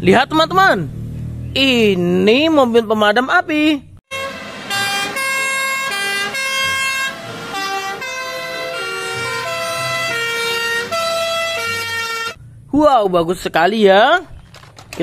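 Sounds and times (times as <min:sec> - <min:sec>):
low rumble of truck engines: 0:00.0 - 0:12.9
two-tone fire engine sirens: 0:04.1 - 0:12.4.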